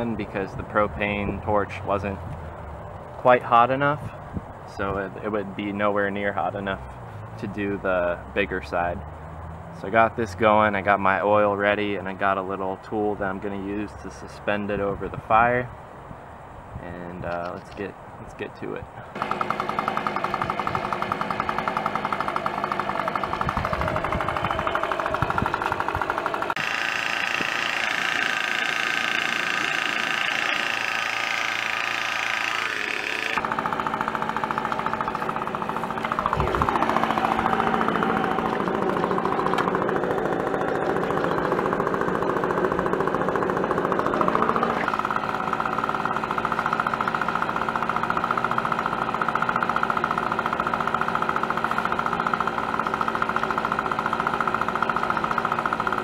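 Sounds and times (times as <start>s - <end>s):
leaf blower running: 19.2s - 56.0s.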